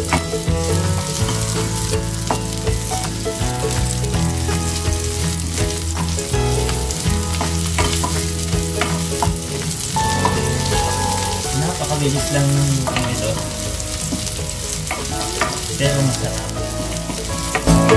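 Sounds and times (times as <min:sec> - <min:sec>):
onion and garlic sizzling in oil: 0:00.0 - 0:17.9.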